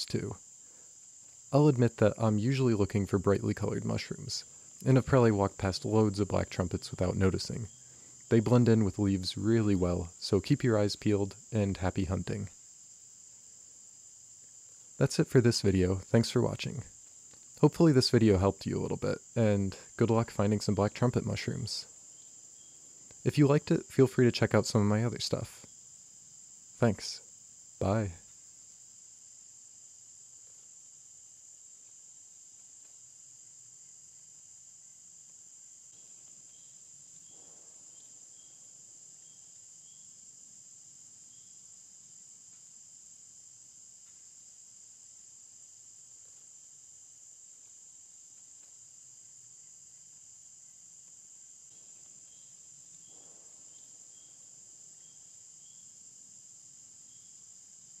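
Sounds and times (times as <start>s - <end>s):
insect chirps: 0.0s - 58.0s
insects trilling: 0.0s - 58.0s.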